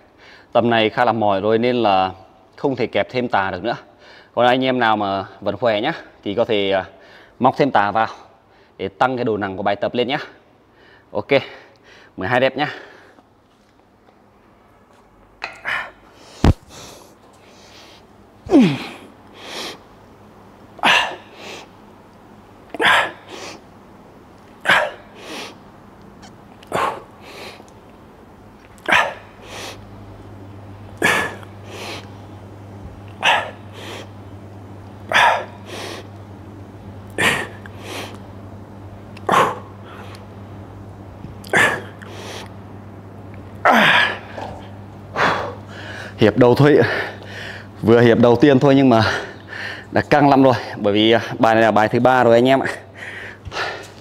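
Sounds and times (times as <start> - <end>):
man breathing hard: 7.0 - 7.4, 15.6 - 19.9, 24.6 - 25.6, 26.7 - 27.7, 28.8 - 29.9, 31.0 - 32.1, 33.2 - 34.2, 35.1 - 36.1, 37.2 - 38.2, 41.6 - 42.5, 43.7 - 46.2, 46.8 - 47.8, 49.0 - 50.0, 52.9 - 54.0.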